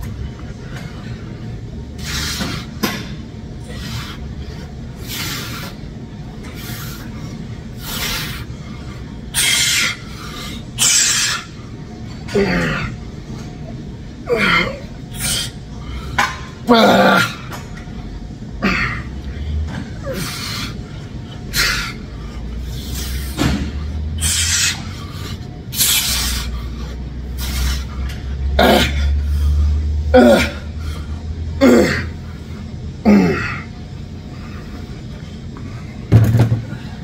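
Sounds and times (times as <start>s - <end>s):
man breathing hard: 3.6s - 5.8s.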